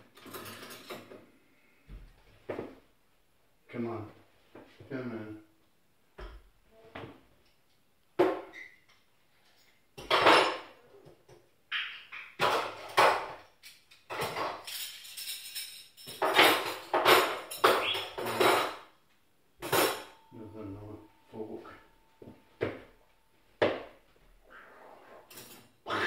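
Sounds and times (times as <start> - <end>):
cutlery and dishes clattering: 0.0 - 1.2, 8.2 - 19.0, 19.6 - 20.3, 25.2 - 26.0.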